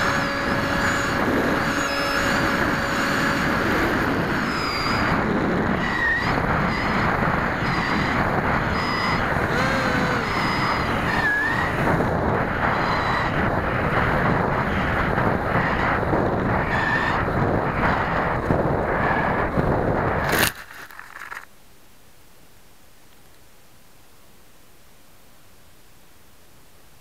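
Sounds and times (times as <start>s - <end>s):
electric motor and propeller whine: 0.0s - 20.5s
wind rush: 0.0s - 21.4s.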